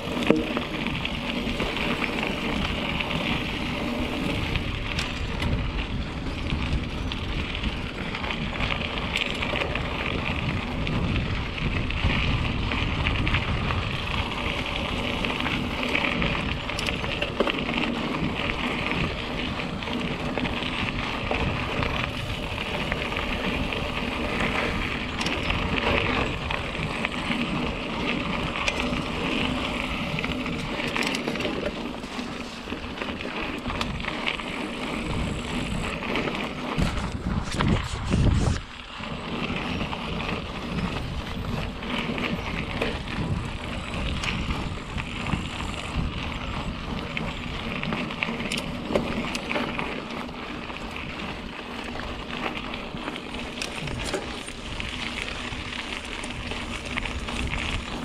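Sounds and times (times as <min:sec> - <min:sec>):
bike tyres rumbling on dirt: 0:00.0 - 0:58.0.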